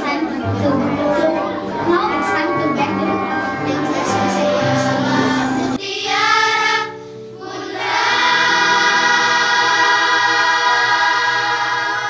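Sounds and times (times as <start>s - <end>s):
choir singing: 3.7s - 12.0s.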